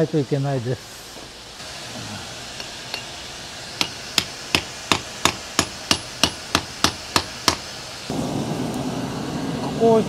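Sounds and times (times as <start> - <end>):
hammer striking steel on anvil: 2.6 - 3.2, 3.8 - 7.7.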